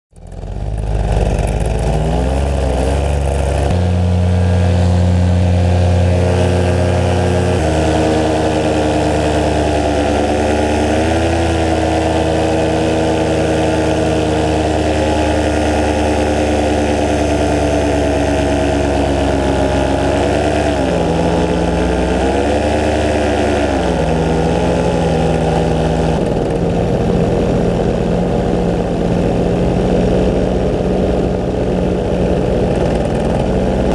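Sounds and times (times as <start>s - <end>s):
paramotor engine and propeller: 0.1s - 33.9s.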